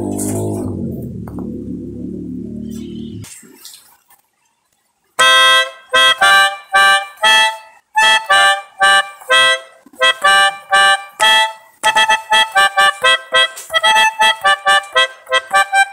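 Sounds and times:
melodica playing short chords: 5.2 - 15.9.

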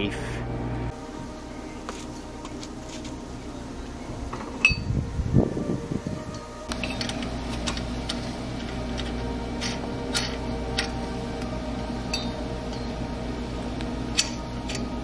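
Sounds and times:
steady low hum: 0.0 - 15.0
lug nuts clinking: 6.7 - 11.5, 14.1 - 15.0.

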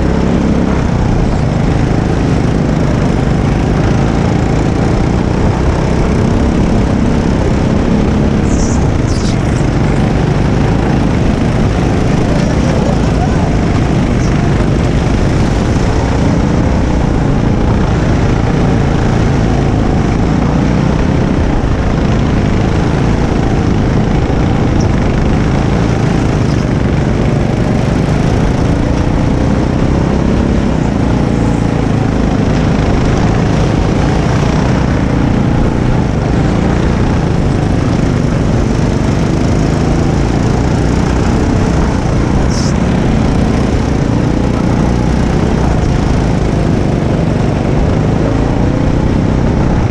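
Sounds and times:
go-kart engine running hard: 0.0 - 49.9.

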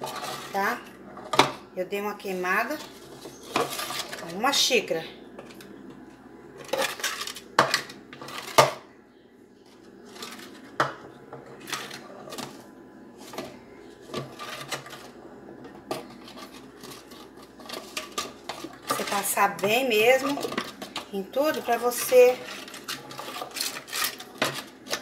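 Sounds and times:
metal spoon scraping cake pan: 16.0 - 25.0.

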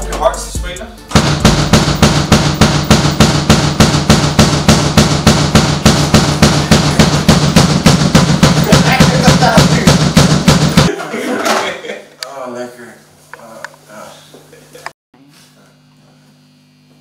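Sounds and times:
drum kit fast beat: 0.0 - 10.9
cymbals: 1.1 - 10.9.

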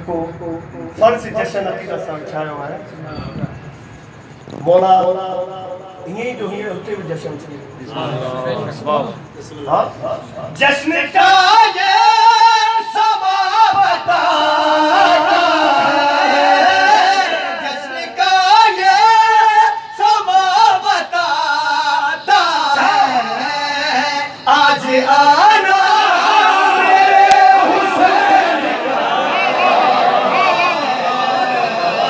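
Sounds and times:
men singing together unaccompanied: 10.6 - 32.0.

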